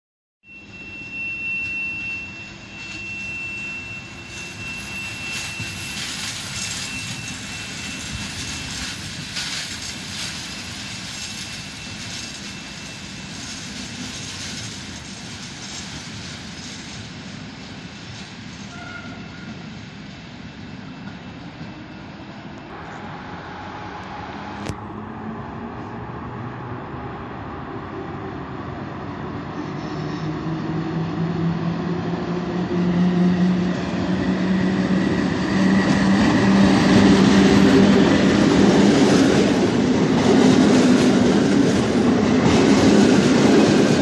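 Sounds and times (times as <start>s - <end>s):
thin high tone: 0.4s - 9.2s
train rumbling: 1.2s - 44.0s.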